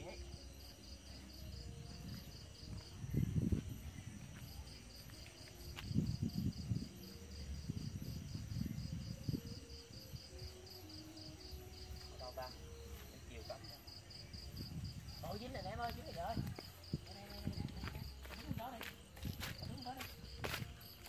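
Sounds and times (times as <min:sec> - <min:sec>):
insects chirping: 0:00.0 - 0:21.0.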